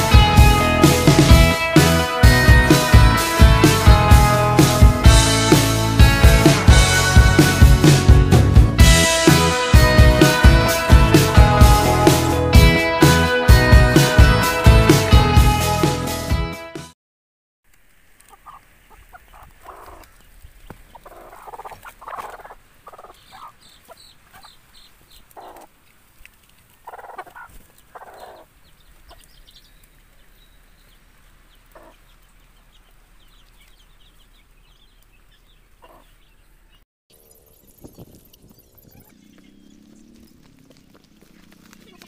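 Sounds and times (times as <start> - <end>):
hens clucking softly: 18.2 - 25.7, 26.8 - 29.3, 31.7 - 33.0, 35.8 - 36.1
faint high chirps: 37.1 - 40.6.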